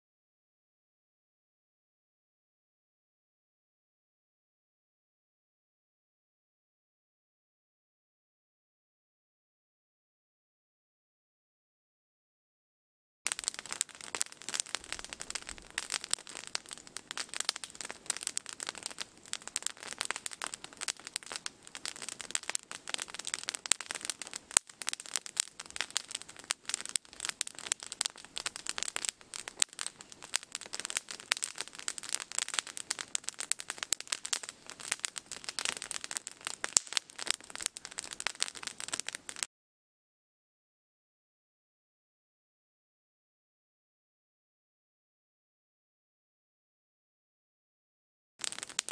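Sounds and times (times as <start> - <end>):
campfire crackling and popping: 13.3 - 39.5, 48.4 - 48.9.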